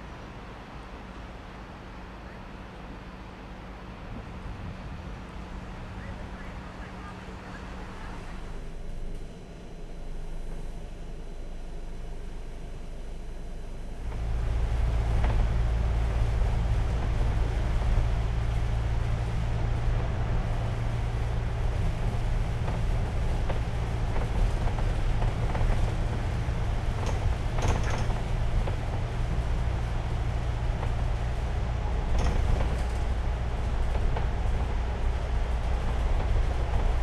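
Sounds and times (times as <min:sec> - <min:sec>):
bus engine drone and road noise: 0:00.0 - 0:37.0.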